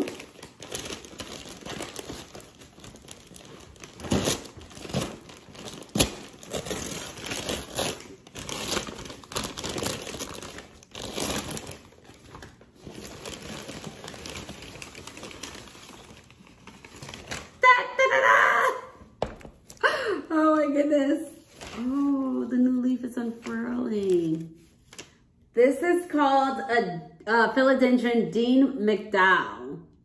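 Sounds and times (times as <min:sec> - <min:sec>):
paper bag crinkling and rustling: 0:00.0 - 0:17.8, 0:21.4 - 0:25.3.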